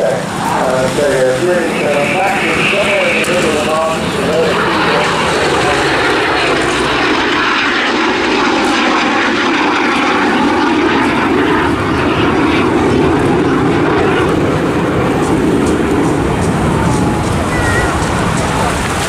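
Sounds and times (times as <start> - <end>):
jet and propeller planes flying over: 0.0 - 19.0.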